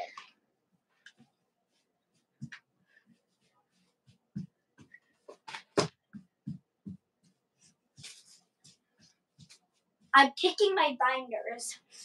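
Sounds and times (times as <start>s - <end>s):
child's feet thumping on floor: 4.1s - 7.2s.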